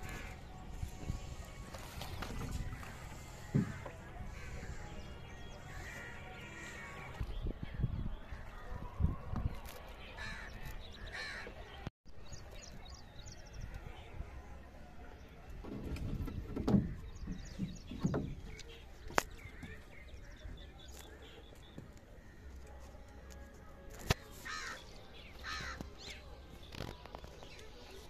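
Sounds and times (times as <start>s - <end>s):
crows cawing: 24.5s - 24.8s, 25.4s - 25.8s.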